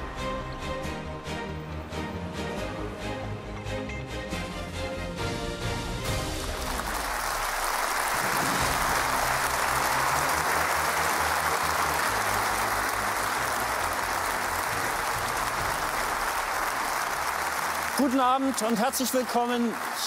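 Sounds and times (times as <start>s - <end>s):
theme music: 0.0s - 20.0s
audience applauding: 6.1s - 20.0s.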